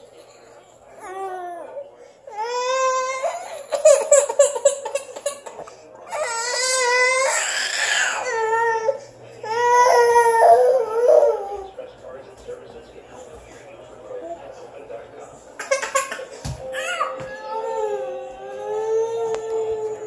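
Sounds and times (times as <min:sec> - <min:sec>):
toddler crying: 0:01.0 - 0:11.7, 0:15.6 - 0:20.0.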